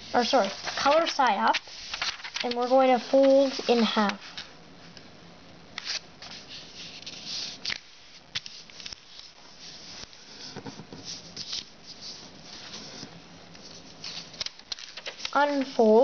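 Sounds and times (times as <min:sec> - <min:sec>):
paper crackling: 0:00.1 - 0:04.5, 0:11.1 - 0:16.0
paper rustling on wooden table: 0:00.2 - 0:04.5, 0:05.8 - 0:15.9.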